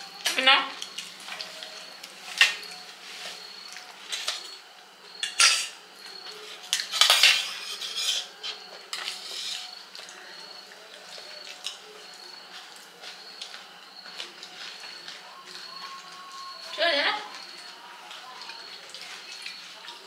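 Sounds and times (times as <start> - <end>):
spoons clinking on plates: 0.1 - 20.0.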